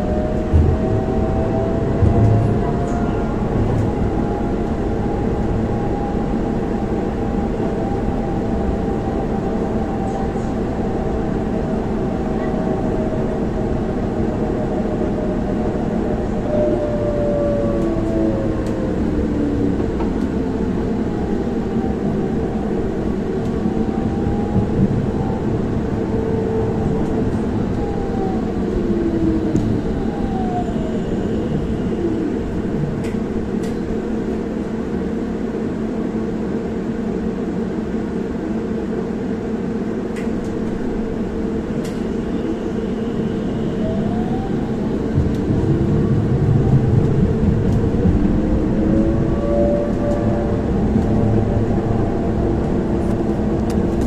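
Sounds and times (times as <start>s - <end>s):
tram drive whining: 0.0s - 54.0s
tram low hum: 0.0s - 54.0s.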